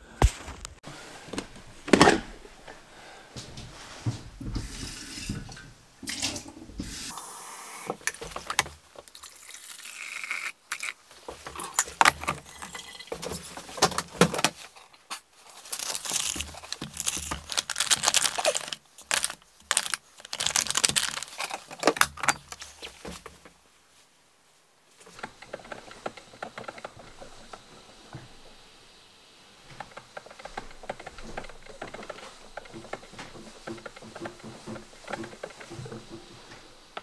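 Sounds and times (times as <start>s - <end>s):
tap water filling a carafe: 4.4s - 8.1s
carafe knocks and clatter: 29.8s - 37.0s.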